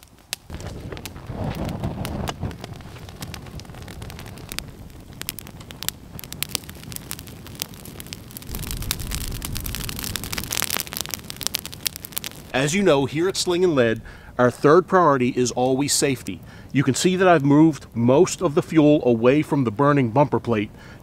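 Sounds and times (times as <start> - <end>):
fire crackling and popping: 0.0 - 21.0
low rumble: 8.3 - 14.2.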